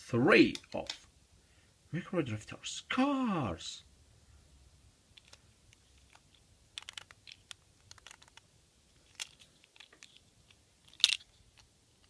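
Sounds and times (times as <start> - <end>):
plastic toy cars clicking: 5.2 - 11.7.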